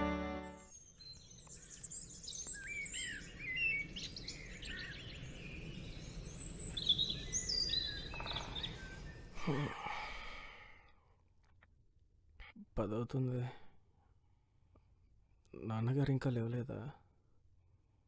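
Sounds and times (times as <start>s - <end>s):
small birds chirping: 0.0s - 10.6s.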